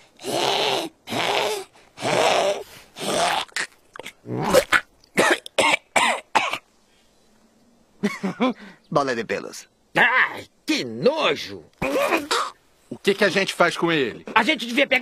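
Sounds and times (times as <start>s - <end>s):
cartoon cat hacking and retching: 0.2s - 5.7s, 11.8s - 12.6s.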